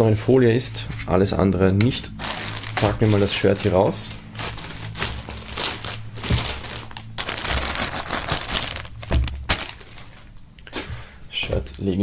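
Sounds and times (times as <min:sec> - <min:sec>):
plastic film crinkling: 0:02.2 - 0:10.4.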